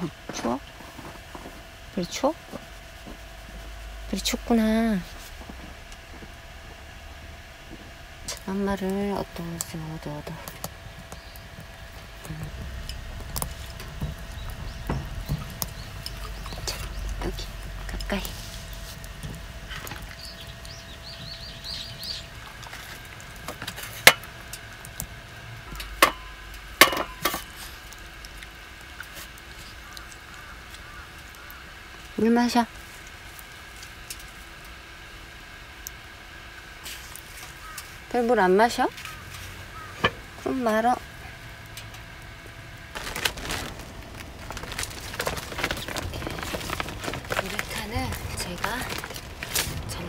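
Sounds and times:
faint room hum: 0.0 - 50.0
dog crunching kibble: 42.9 - 50.0
plastic sheet crinkling: 42.9 - 50.0.

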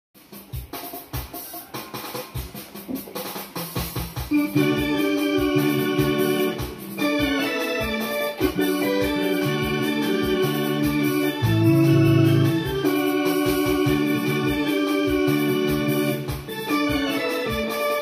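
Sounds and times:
steady drum beat: 0.2 - 18.0
keyboard organ chords: 4.2 - 18.0.

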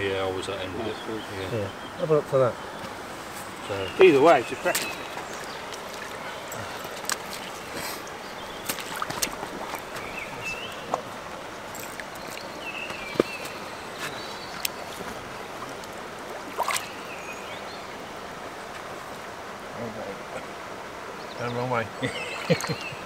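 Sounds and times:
water splashing and lapping: 2.9 - 19.6.

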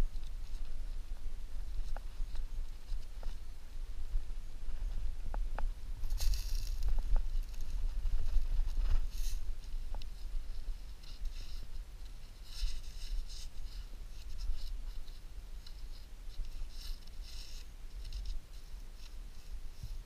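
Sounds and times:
hands scraping sandy soil: 6.1 - 20.0.

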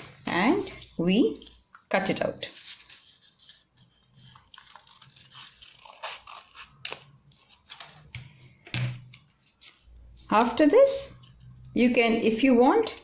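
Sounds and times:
scissors snipping paper: 2.6 - 8.0.

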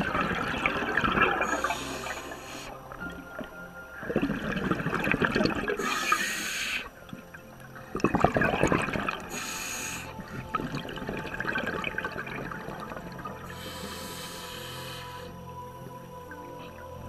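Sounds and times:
bubbling: 0.0 - 17.0
diver breathing through regulator: 1.4 - 2.8, 5.8 - 6.9, 9.3 - 10.4, 13.4 - 15.5.

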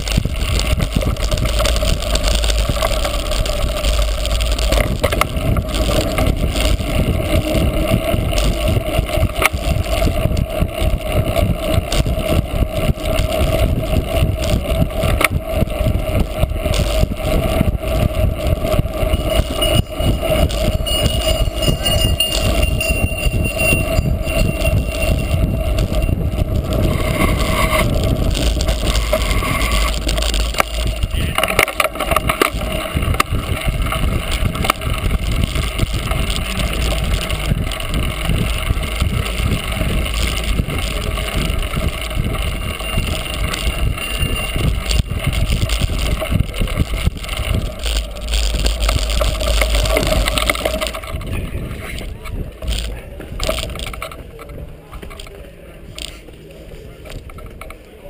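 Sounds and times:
bike rattling over rough ground: 0.0 - 58.0
wind rumbling on microphone: 0.0 - 58.0.

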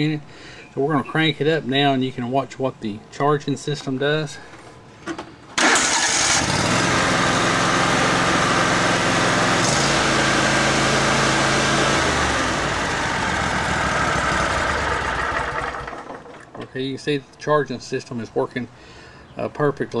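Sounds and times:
small engine running: 5.7 - 16.3.

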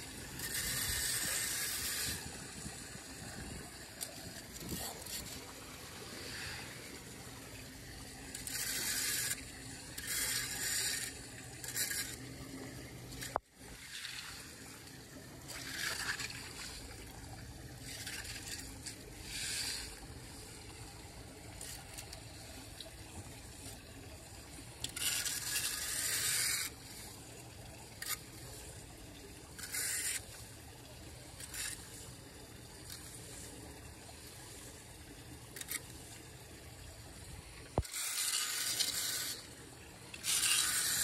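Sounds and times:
rake scraping wet leaves: 0.0 - 12.3, 15.4 - 17.0, 17.8 - 20.8, 24.6 - 27.2, 27.9 - 30.5, 31.2 - 32.2, 32.8 - 34.8, 35.5 - 36.4, 37.7 - 41.0
water trickling into drain: 0.0 - 41.0.

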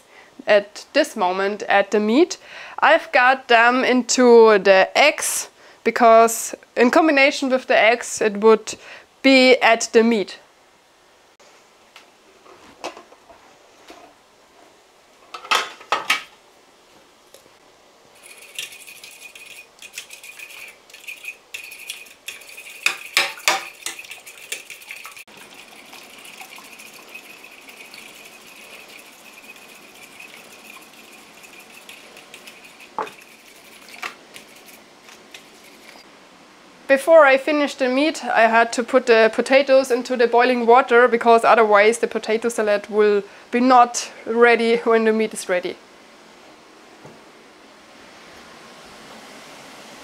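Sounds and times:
utensil ticking against bowl: 18.2 - 34.8
kitchenware clinking: 18.2 - 36.0.

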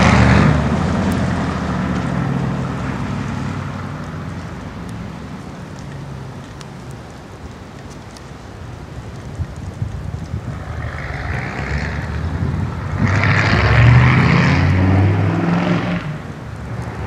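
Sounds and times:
truck engine revving: 0.0 - 3.8, 10.9 - 16.2.

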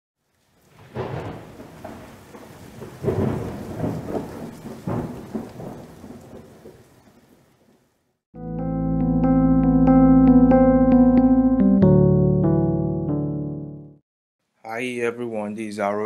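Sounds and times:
steady rain: 0.2 - 8.2
thunder rolling: 0.7 - 6.8
piano chord: 8.4 - 14.0.

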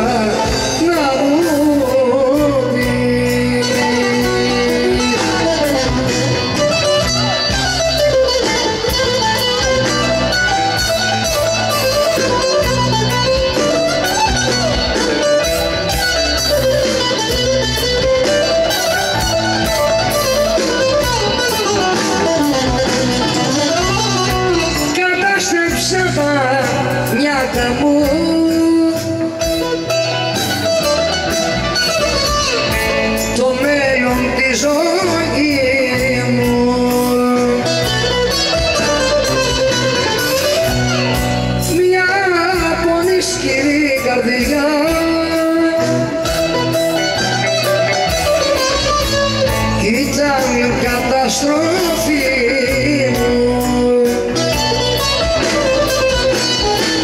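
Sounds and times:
bouzouki melody: 0.0 - 57.0
live band playing through a pa: 0.0 - 57.0.

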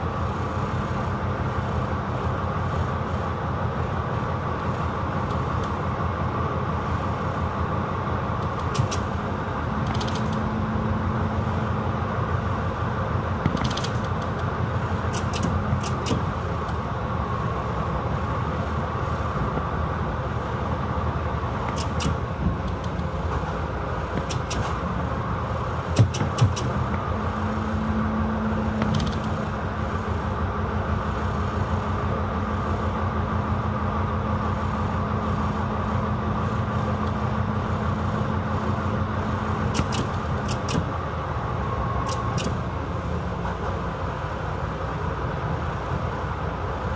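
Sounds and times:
diesel locomotive engine running: 0.0 - 46.9
sharp metallic clicks: 8.4 - 9.1, 15.1 - 16.3, 21.6 - 23.1, 24.2 - 24.8, 25.9 - 26.9, 39.7 - 40.9, 42.0 - 42.6.

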